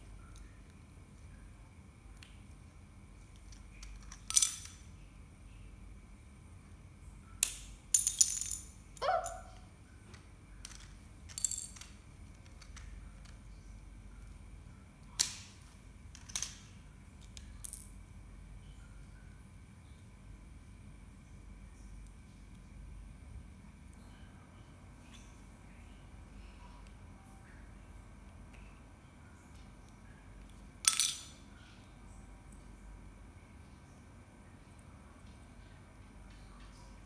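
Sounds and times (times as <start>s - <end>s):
pieces clattering on tile floor: 3.6s - 4.8s, 7.4s - 9.4s, 10.6s - 13.4s, 16.1s - 16.7s, 30.8s - 31.4s
plastic bricks snapping apart: 7.4s - 8.6s, 15.2s - 15.6s.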